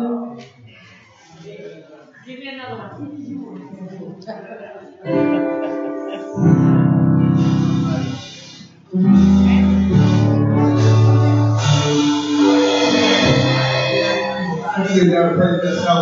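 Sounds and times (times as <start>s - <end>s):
keyboard playing held chords: 5.1s - 16.0s.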